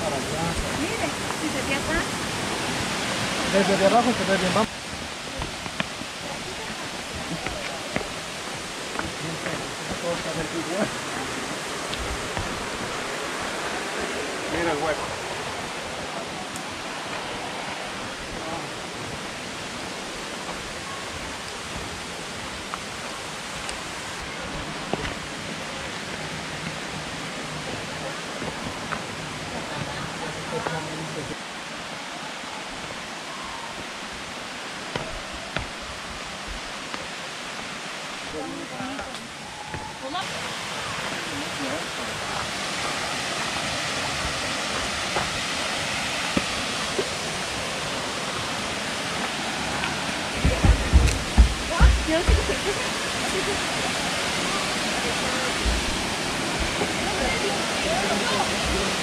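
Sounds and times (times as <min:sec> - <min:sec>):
waterfall rushing: 0:00.0 - 0:59.0
footsteps on trail: 0:04.9 - 0:10.3, 0:10.9 - 0:13.5, 0:33.8 - 0:37.7, 0:49.1 - 0:53.4, 0:55.6 - 0:59.0.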